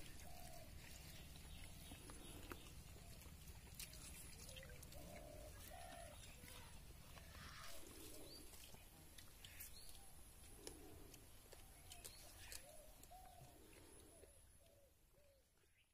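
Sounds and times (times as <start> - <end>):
dove cooing: 0.0 - 3.4, 4.4 - 8.5, 12.5 - 15.4
birdsong calls: 0.0 - 15.9.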